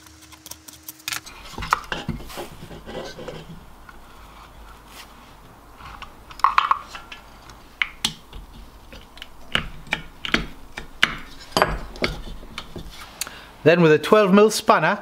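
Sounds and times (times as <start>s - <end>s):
metal clicks and taps: 6.0s - 12.9s.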